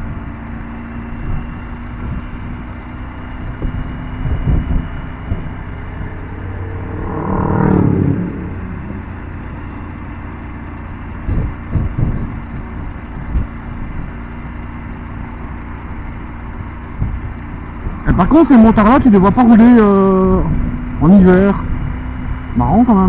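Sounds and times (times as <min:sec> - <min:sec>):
motorcycle engine cruising: 0:00.0 - 0:23.0
motorcycles passing by: 0:01.7 - 0:23.0
wind rush: 0:03.3 - 0:14.7.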